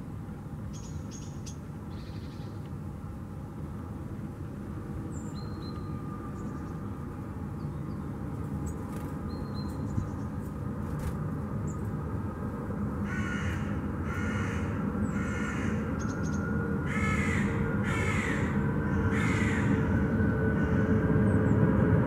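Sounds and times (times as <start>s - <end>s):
crow cawing: 13.0s - 16.0s, 16.8s - 20.0s.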